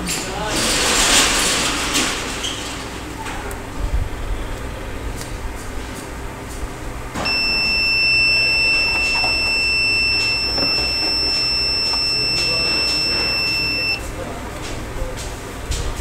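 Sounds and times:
high-pitched buzzer alarm tone: 7.2 - 14.0.

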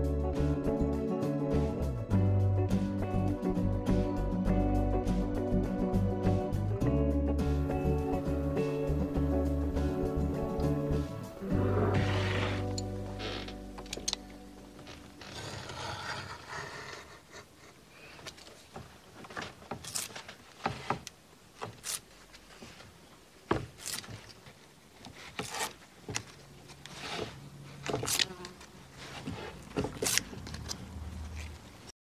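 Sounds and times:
knife cutting wooden veneer: 15.0 - 17.8, 19.7 - 22.1, 23.6 - 24.3, 25.0 - 30.7.

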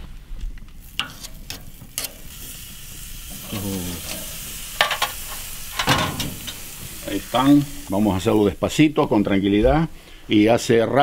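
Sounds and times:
steaks sizzling on grill: 0.6 - 10.4
metal tongs clicking on grates: 1.0 - 2.4, 3.3 - 6.7.

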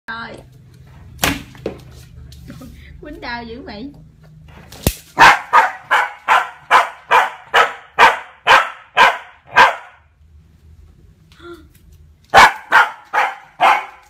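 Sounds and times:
puppy barking: 5.2 - 10.1, 12.3 - 14.0.

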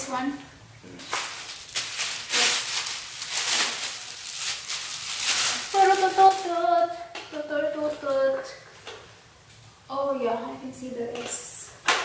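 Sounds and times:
plastic wrap crinkling: 1.0 - 7.0.

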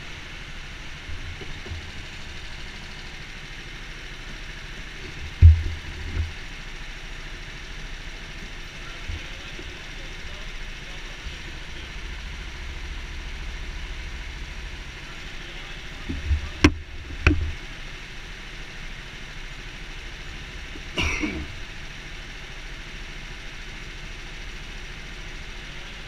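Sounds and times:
low engine hum: 0.0 - 26.0
low thumps: 5.1 - 6.4
person clearing throat: 20.9 - 21.6.

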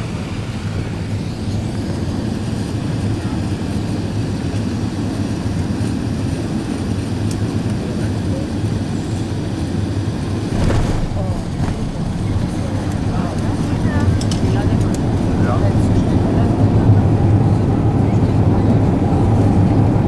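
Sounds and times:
aircraft cabin engine rumble: 0.0 - 20.0
runway roll: 9.9 - 17.3.

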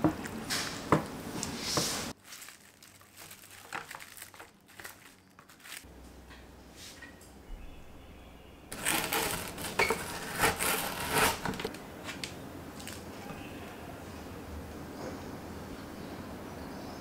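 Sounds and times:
knife crunching through frozen bar: 8.7 - 11.7.

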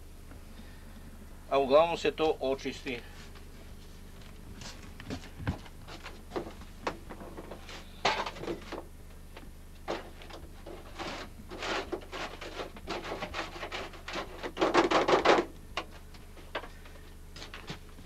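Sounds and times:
tool scraping a tray: 10.0 - 15.4.

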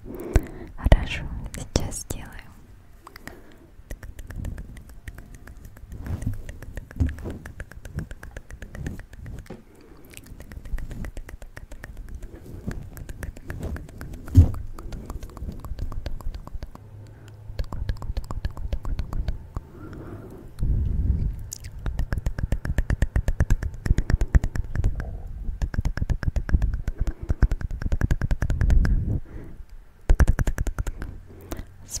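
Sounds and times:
wet mouth clicks and smacks: 3.0 - 20.7, 21.4 - 29.0, 30.1 - 31.7
soft low thuds: 4.3 - 9.7, 12.0 - 16.8.

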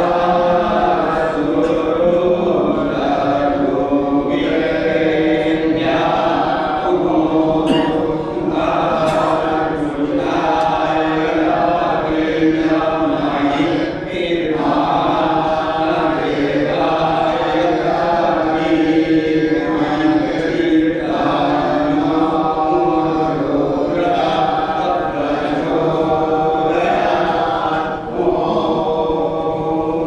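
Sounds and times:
group of voices chanting: 0.0 - 30.0.

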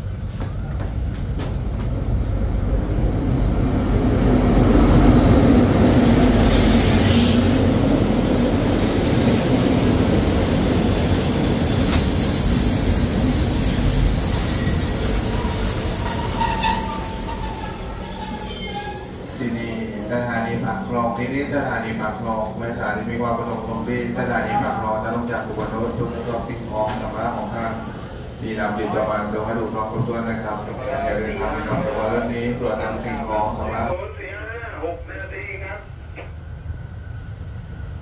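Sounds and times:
high brake squeal: 0.0 - 1.4, 8.2 - 19.9
diesel train rumbling: 0.0 - 38.0.

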